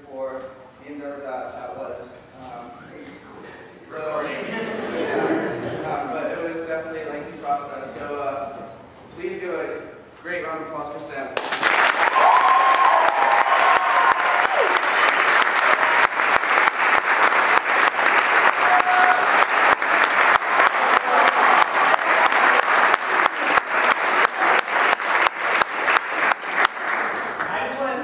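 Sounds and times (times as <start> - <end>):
audience applauding: 11.4 - 28.0.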